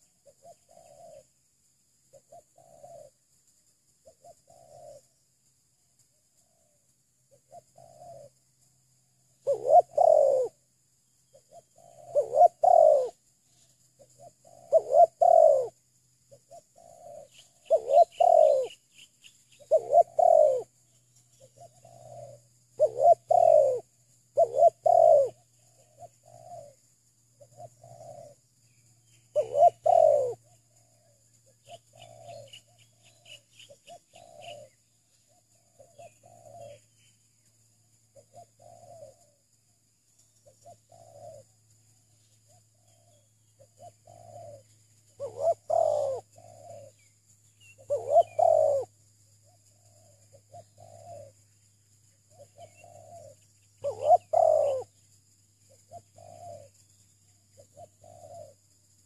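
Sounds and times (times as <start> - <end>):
loud dove cooing: 0.0 - 1.3, 2.1 - 3.1, 4.0 - 5.0, 7.4 - 8.3, 9.4 - 10.6, 11.3 - 13.2, 14.1 - 15.8, 16.4 - 18.8, 19.6 - 20.7, 21.4 - 26.8, 27.4 - 28.4, 29.3 - 31.1, 31.7 - 34.8, 35.6 - 36.8, 38.2 - 39.4, 40.4 - 41.5, 42.5 - 47.0, 47.8 - 48.9, 49.7 - 51.4, 52.3 - 55.0, 55.9 - 56.8, 57.6 - 58.6
faint dove cooing: 0.0 - 1.4, 2.1 - 3.2, 4.0 - 5.2, 6.4 - 8.4, 9.2 - 10.7, 11.3 - 18.9, 19.6 - 37.1, 38.0 - 39.5, 40.2 - 51.7, 52.3 - 59.0.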